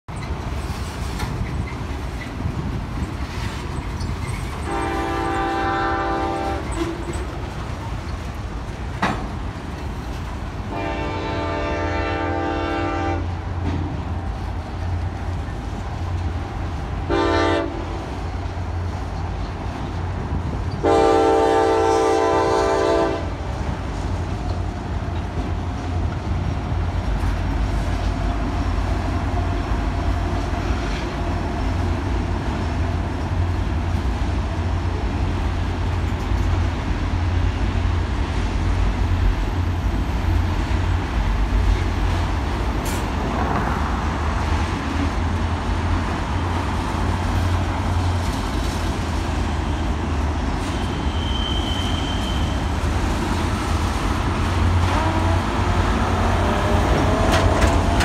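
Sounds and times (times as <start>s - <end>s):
freight cars rumbling and clacking: 0.1s - 58.0s
locomotive air horn: 4.6s - 7.0s, 10.7s - 13.4s, 17.1s - 18.0s, 20.8s - 23.4s, 50.6s - 52.7s, 54.8s - 57.4s.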